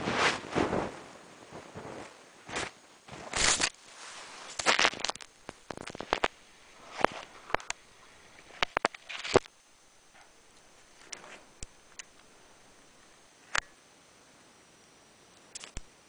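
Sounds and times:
handling noise on microphone: 0.0s - 13.2s
snow crunching: 0.0s - 13.3s
sharp clicks: 4.6s - 9.6s, 15.4s - 15.9s.

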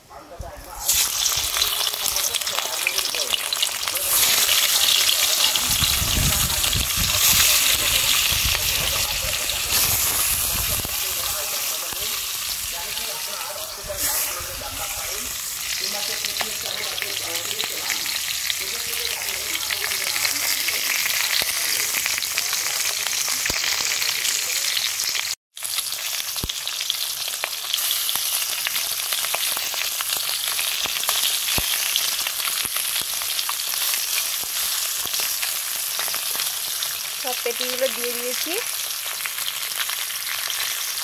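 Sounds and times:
fish sizzling in hot oil: 0.8s - 41.0s.

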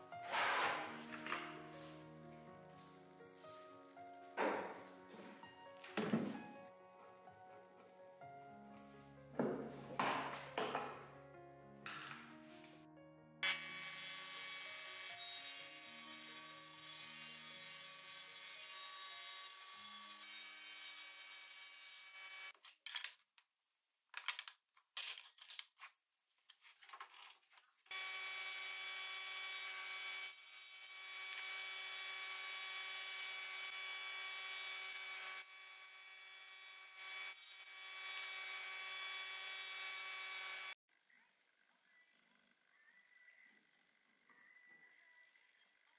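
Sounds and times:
table saw cutting wood: 0.1s - 2.2s, 13.4s - 22.6s, 27.9s - 40.8s
wood knocking and clattering: 9.4s - 11.1s.

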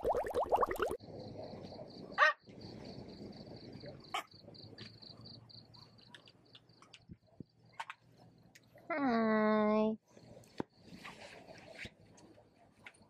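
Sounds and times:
crickets chirring: 0.1s - 8.8s.

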